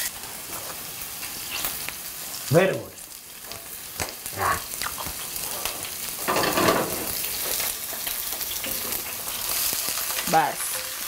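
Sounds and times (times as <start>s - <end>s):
onions sizzling in hot oil: 0.0s - 11.0s
spatula scraping pan: 5.3s - 11.0s.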